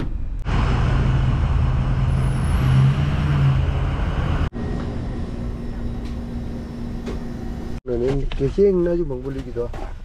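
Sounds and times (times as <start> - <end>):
car engine and road noise: 0.0 - 8.0.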